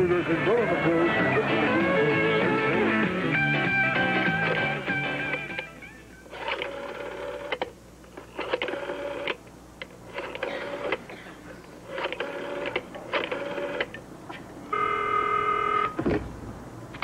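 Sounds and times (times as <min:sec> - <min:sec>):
telephone ringing tone: 0:06.3 - 0:07.6, 0:08.4 - 0:09.4, 0:11.9 - 0:13.9, 0:14.7 - 0:16.0
rotary dial whirring and clicking: 0:06.3 - 0:11.1, 0:11.8 - 0:16.0.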